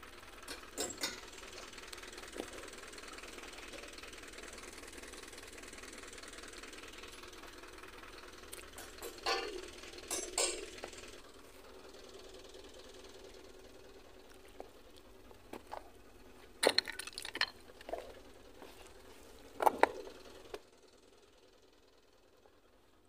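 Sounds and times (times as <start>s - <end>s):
hard objects clattering on rock: 16.6s - 18.2s.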